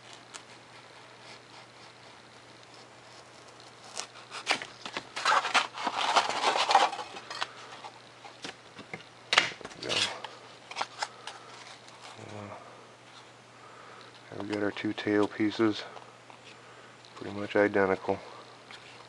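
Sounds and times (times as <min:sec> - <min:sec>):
foam sheet rustling and creaking: 0:03.5 - 0:07.3.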